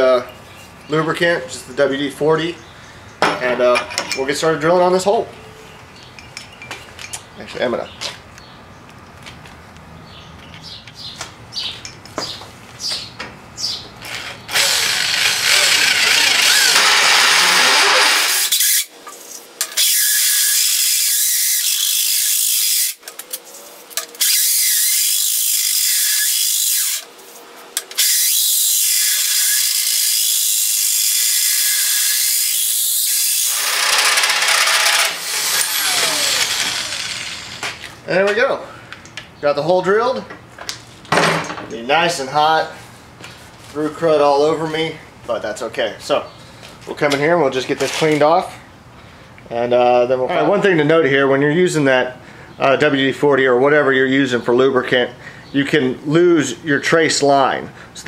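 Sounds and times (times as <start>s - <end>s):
drill cutting through metal: 14.0s - 18.9s, 19.6s - 23.0s, 24.0s - 27.1s, 27.8s - 37.8s.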